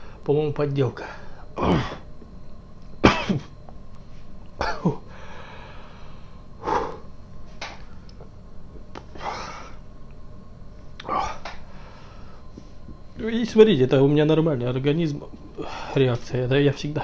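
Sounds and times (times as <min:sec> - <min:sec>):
man sneezing or coughing: 0:01.6 - 0:02.0, 0:03.0 - 0:03.5, 0:04.6 - 0:05.0
breathy huffs: 0:05.1 - 0:07.1, 0:15.6 - 0:16.0.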